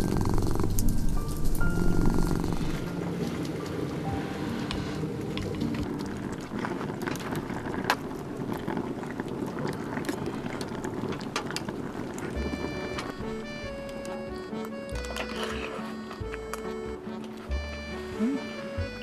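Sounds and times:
background music: 0:00.0 - 0:06.9, 0:12.4 - 0:19.0
steady low hiss: 0:00.0 - 0:15.0.

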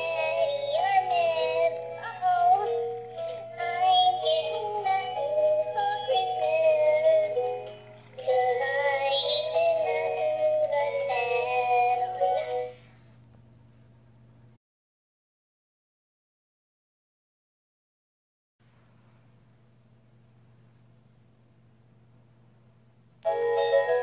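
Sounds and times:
toy singing in a synthesized voice: 0:00.0 - 0:02.8, 0:03.6 - 0:07.6, 0:08.2 - 0:12.6
faint low hum: 0:00.0 - 0:14.6, 0:18.6 - 0:24.0.

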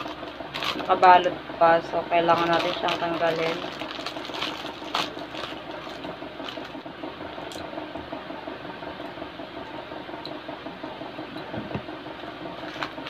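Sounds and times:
plastic bag crinkling: 0:00.0 - 0:01.1, 0:02.2 - 0:06.8, 0:12.6 - 0:13.0.

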